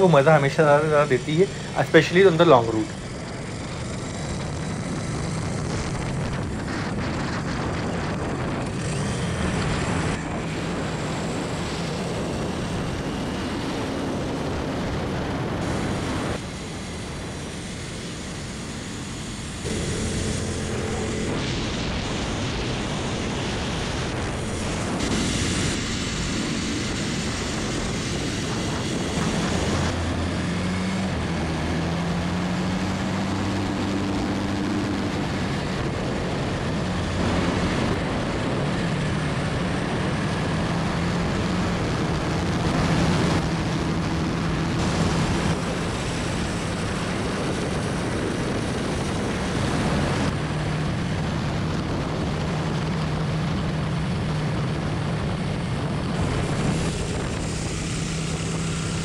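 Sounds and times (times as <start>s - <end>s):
motorcycle engine at highway speed: 0.0s - 59.0s
wind rush: 0.0s - 59.0s.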